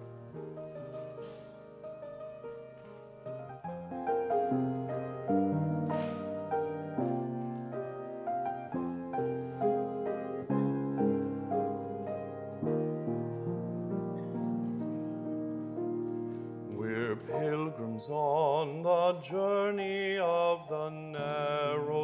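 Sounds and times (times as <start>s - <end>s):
slow piano chords and melody: 0.0s - 22.0s.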